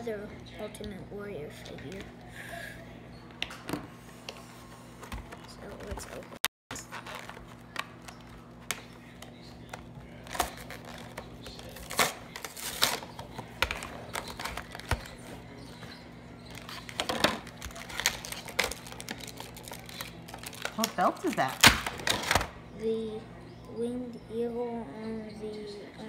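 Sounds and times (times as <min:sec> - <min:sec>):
plastic packaging crinkling: 0:06.8 - 0:08.4, 0:10.2 - 0:15.2, 0:16.5 - 0:22.5.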